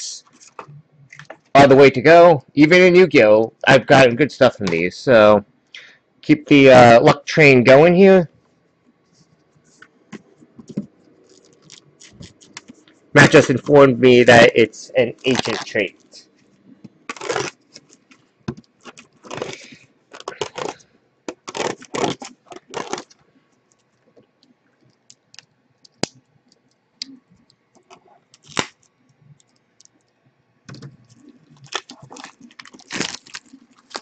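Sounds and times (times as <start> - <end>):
trading cards rustling: 9.7 - 23.2, 30.7 - 34.0.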